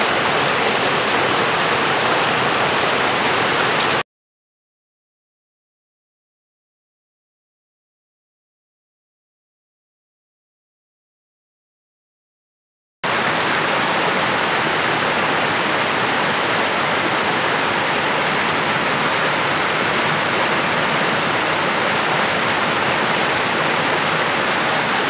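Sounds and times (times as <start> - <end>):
stream rushing over rocks: 0.0 - 4.0, 13.1 - 25.0.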